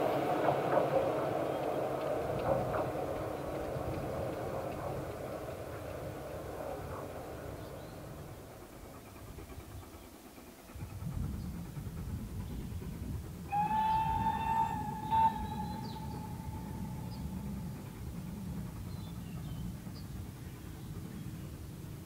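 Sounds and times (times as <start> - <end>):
steam locomotive whistle: 13.5 - 18.3
low rumble: 13.9 - 20.0.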